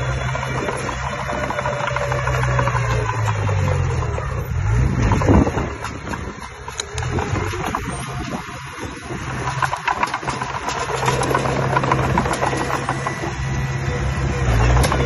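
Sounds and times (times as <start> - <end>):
heavy machinery engine running: 0.0 - 15.0
clicks and rattles: 5.0 - 13.4, 14.6 - 15.0.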